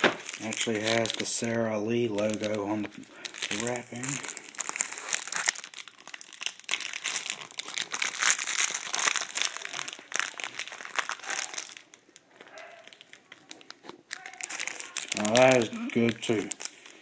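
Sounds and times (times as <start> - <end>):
plastic wrapper crinkling: 0.0 - 17.0.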